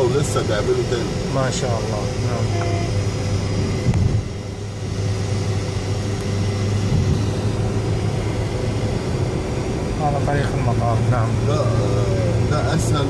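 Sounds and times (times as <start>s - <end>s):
engine and tyre drone: 0.0s - 13.0s.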